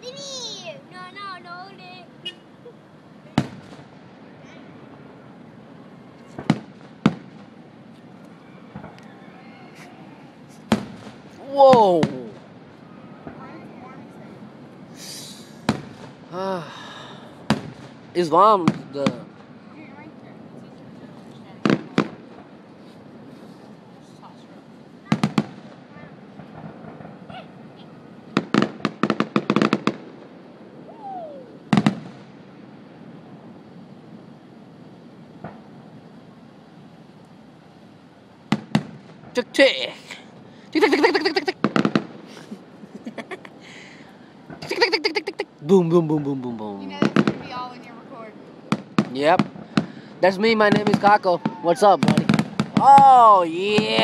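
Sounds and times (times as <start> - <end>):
fireworks cracks: 0.0 - 5.2, 6.1 - 9.1, 9.8 - 34.3, 35.0 - 36.2, 38.4 - 54.0
fireworks loud bangs: 3.3 - 5.2, 6.2 - 7.8, 8.4 - 9.0, 9.9 - 16.4, 17.4 - 19.6, 21.4 - 23.4, 25.0 - 30.8, 31.7 - 33.5, 35.4 - 35.9, 38.5 - 39.4, 40.8 - 45.2, 47.0 - 53.1
firework shells bursting: 28.4 - 30.4, 40.8 - 43.1, 47.0 - 47.5, 50.6 - 52.8
falling whistle: 30.9 - 31.6.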